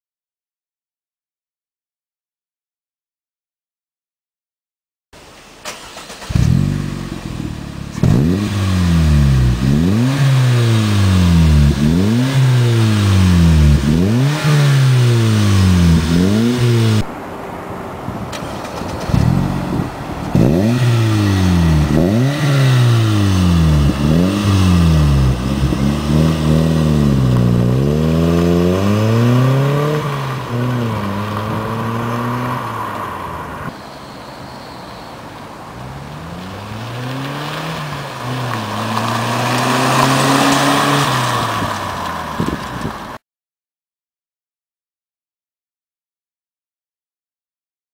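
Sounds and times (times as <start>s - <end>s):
car engine revving: 5.2s - 17.1s, 18.2s - 33.7s, 35.5s - 43.2s
car driving off: 5.2s - 43.2s.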